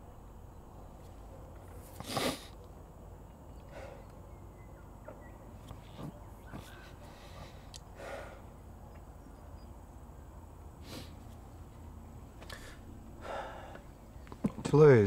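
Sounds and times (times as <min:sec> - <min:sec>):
person breathing softly: 0:06.6 - 0:08.5, 0:12.4 - 0:13.9.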